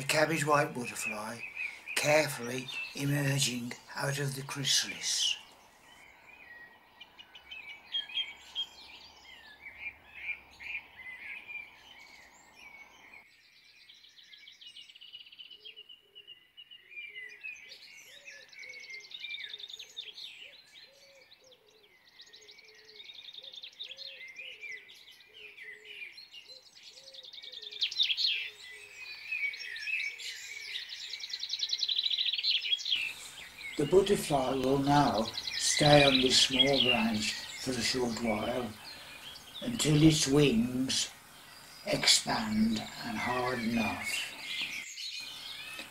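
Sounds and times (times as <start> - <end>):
birds singing and chirping: 0.0 - 45.9
repeated low bird note: 33.1 - 41.2.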